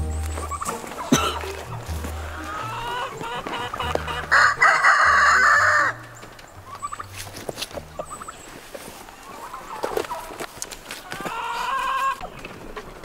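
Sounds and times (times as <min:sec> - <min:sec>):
hen squawking: 0:00.0 - 0:08.5
hens clucking: 0:00.0 - 0:13.0.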